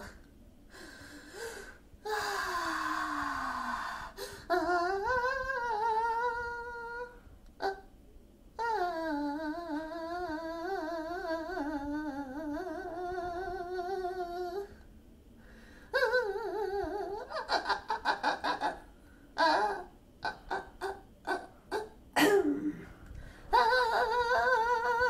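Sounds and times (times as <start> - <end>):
person humming: 2.1 - 7.9, 8.6 - 14.8, 15.9 - 18.8, 19.4 - 22.9, 23.5 - 25.0.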